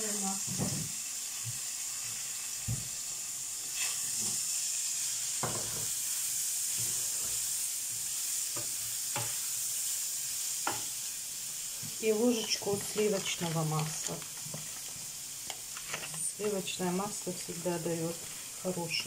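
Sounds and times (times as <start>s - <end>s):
mushrooms sizzling in frying pan: 0.0s - 19.0s
spatula scraping against pan: 3.7s - 4.4s.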